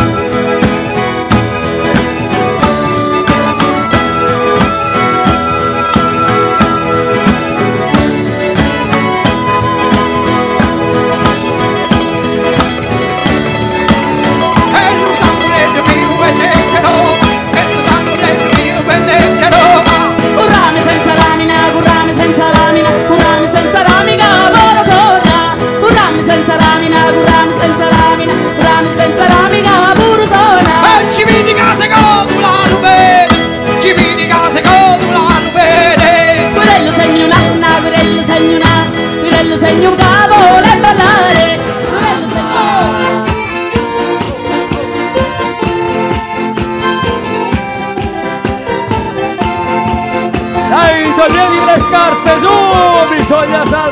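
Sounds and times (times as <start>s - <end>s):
frame drums with jingles: 0.0s - 53.9s
woman singing: 13.6s - 44.4s.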